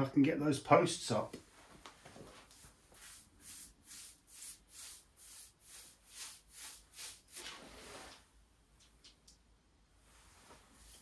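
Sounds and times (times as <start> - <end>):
paintbrush swishing on wood: 2.2 - 8.2, 10.3 - 11.0.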